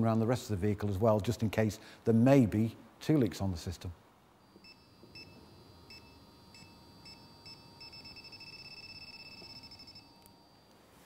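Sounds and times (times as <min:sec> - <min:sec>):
leak detector beeping: 0:04.4 - 0:10.8.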